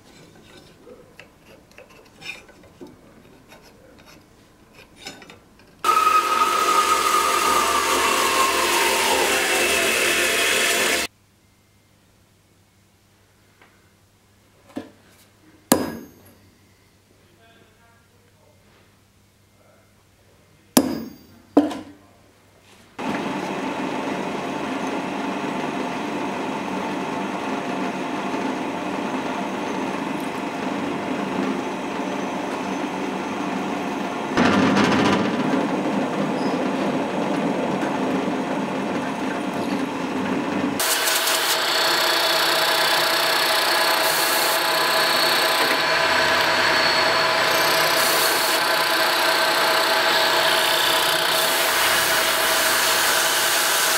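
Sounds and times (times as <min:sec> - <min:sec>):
drill press drilling brass: 0:05.8 - 0:11.1, 0:40.8 - 0:53.9
end mill cutting brass: 0:05.8 - 0:11.1, 0:40.8 - 0:53.9.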